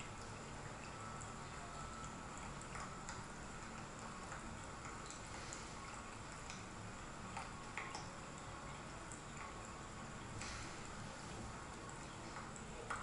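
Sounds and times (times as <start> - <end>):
faint steady rain: 0.0 - 13.0
drip clicks: 2.0 - 8.2, 11.8 - 13.0.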